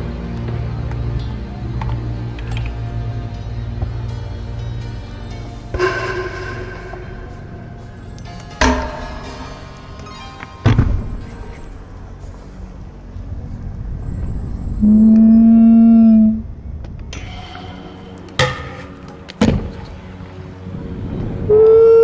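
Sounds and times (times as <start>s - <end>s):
scooter hitting concrete box: 8.6s - 9.6s, 18.3s - 19.9s
loud steady held tone: 14.2s - 16.4s.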